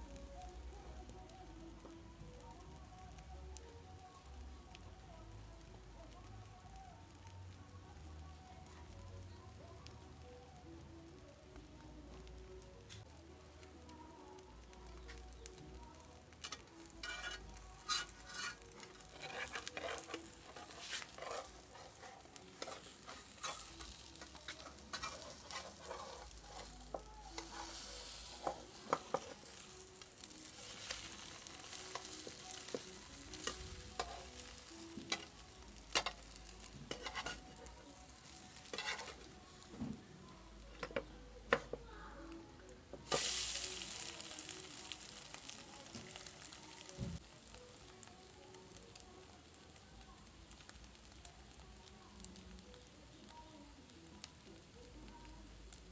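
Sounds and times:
omelette sizzling in pan: 0.0s - 42.1s, 42.7s - 55.9s
spatula scraping and tapping pan: 16.4s - 29.6s, 31.7s - 37.6s, 38.6s - 39.3s, 40.7s - 41.8s.

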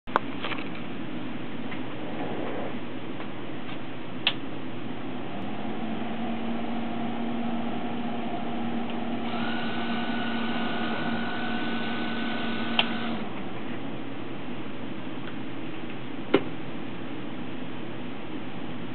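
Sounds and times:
low hum: 0.9s - 16.1s
motor whine: 4.9s - 13.6s.

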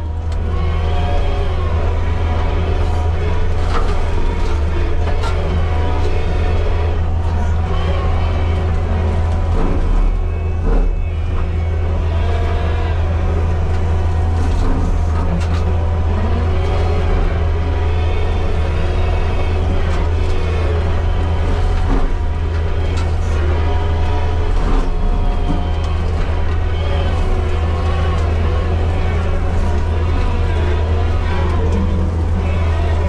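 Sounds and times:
diesel engine droning: 0.0s - 33.0s
faint whines: 0.0s - 33.0s.

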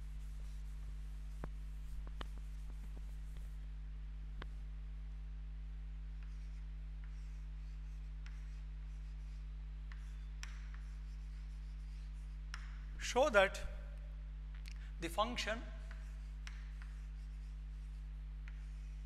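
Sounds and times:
chalk scratching on blackboard: 0.0s - 3.6s, 6.2s - 12.9s, 15.8s - 19.0s
chalk tapping: 0.0s - 3.6s, 6.2s - 12.9s, 15.8s - 19.0s
low electrical hum: 0.0s - 19.0s.

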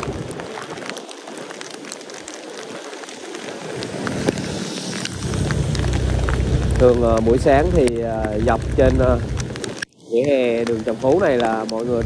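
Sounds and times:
heavy rain falling: 0.0s - 12.0s
raindrops ticking: 0.0s - 12.0s
low rumble: 3.8s - 9.7s.

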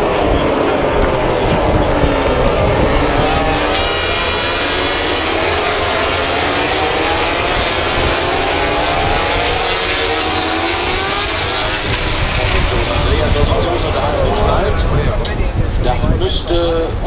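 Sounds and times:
low rumble: 0.0s - 4.7s
racing motorcycle engines: 0.0s - 17.0s.

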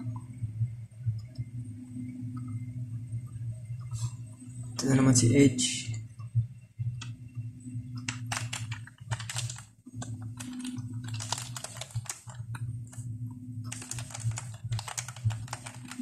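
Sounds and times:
low steady hum: 0.0s - 16.0s
computer keyboard typing: 8.0s - 16.0s.

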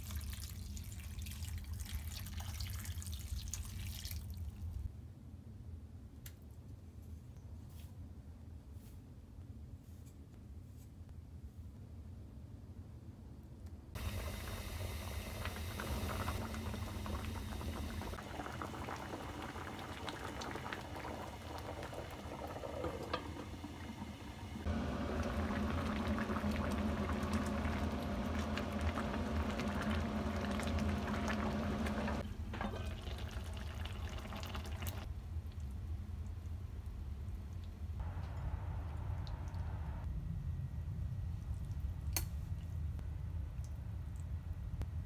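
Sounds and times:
pot bubbling: 14.0s - 36.5s.

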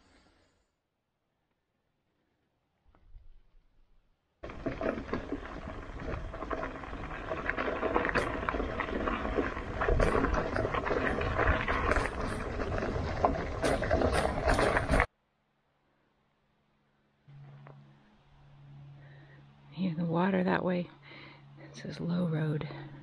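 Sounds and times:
bike tyres rumbling on trail: 4.4s - 15.1s
crackles and rattles: 4.4s - 15.1s.

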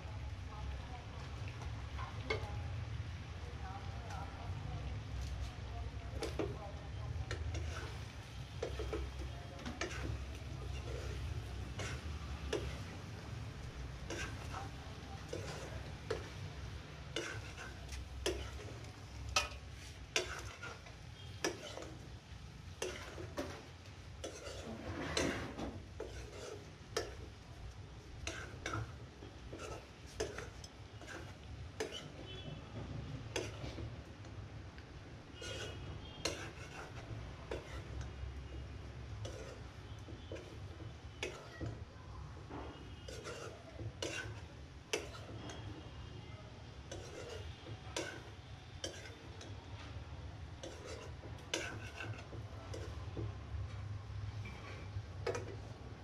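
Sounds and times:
wooden spatula scraping metal pan: 5.3s - 27.4s, 28.0s - 34.0s, 35.3s - 41.8s, 42.5s - 45.9s, 46.8s - 53.3s.

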